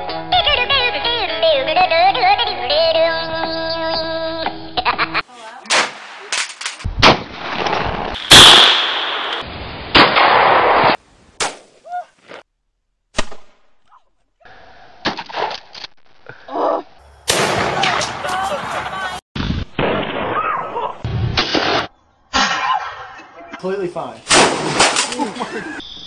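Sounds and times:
shotgun blasts: 0:05.7 - 0:06.4, 0:07.0 - 0:09.4, 0:17.2 - 0:18.9, 0:24.3 - 0:25.2.

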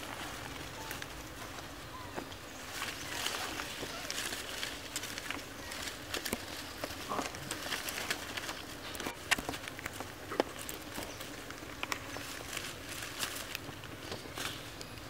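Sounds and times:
leaves and twigs rustling: 0:00.0 - 0:15.0.

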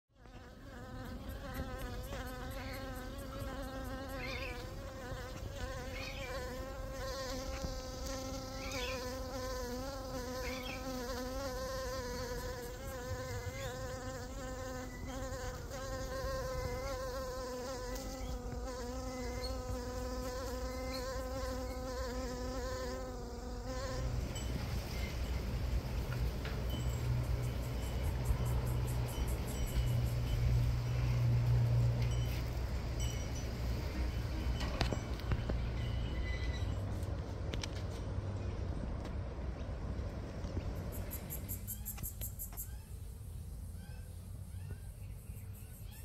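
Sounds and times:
insect wings buzzing: 0:00.2 - 0:24.0.

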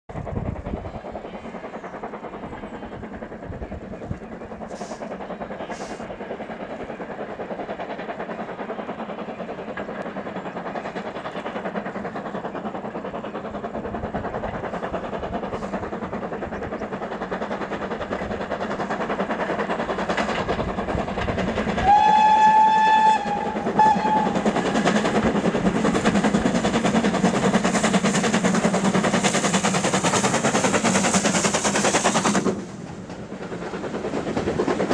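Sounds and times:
steam locomotive exhaust: 0:00.1 - 0:34.9
steam whistle: 0:21.8 - 0:24.4.

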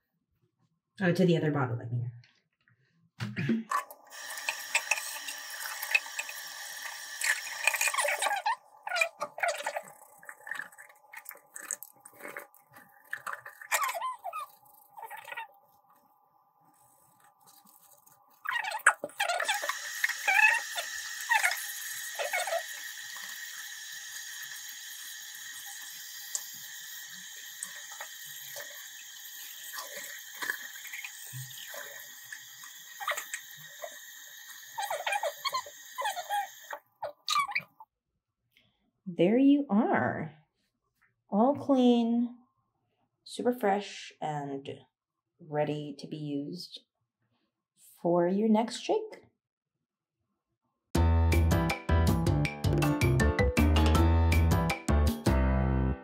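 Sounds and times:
tap water running into sink: 0:03.7 - 0:13.9, 0:18.8 - 0:36.8
squeaky scrubbing of plastic bottle: 0:07.2 - 0:15.6, 0:17.1 - 0:22.9, 0:34.7 - 0:37.8.

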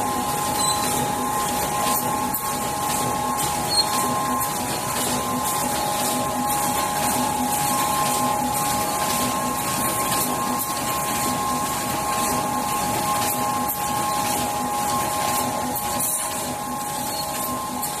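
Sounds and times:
machine hum with whining tones: 0:00.0 - 0:18.0.

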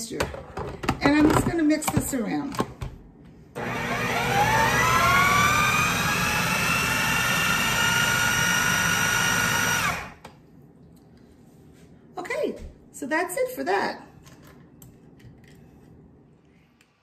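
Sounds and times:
food processor motor whine: 0:03.6 - 0:10.2.

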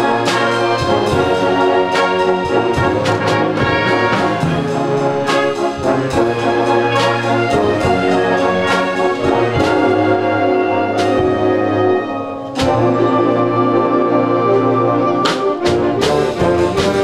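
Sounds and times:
concert band playing rock and roll: 0:00.0 - 0:13.2
drum strokes: 0:00.0 - 0:13.4, 0:15.2 - 0:17.0.

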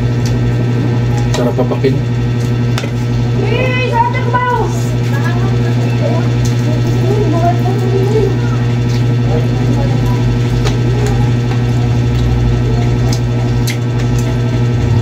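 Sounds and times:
small motor humming: 0:00.0 - 0:15.0.

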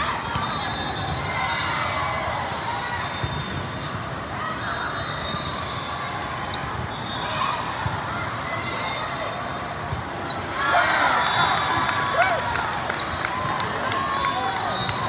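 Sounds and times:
voices of players and spectators: 0:00.0 - 0:15.0
shoe squeaks: 0:04.6 - 0:07.8, 0:08.6 - 0:10.6.

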